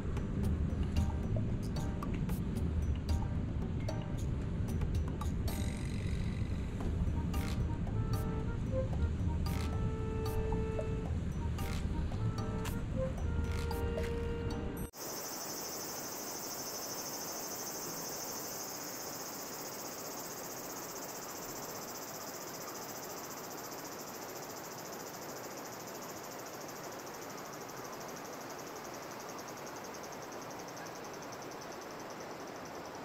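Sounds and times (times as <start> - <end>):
insects trilling: 5.5 - 8.3, 15.0 - 33.0.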